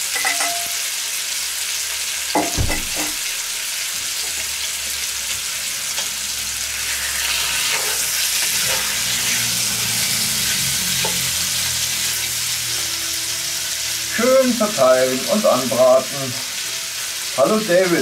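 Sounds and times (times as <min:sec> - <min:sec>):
meat sizzling in hot oil: 0:00.0 - 0:18.0
knock on pot: 0:02.4 - 0:03.2.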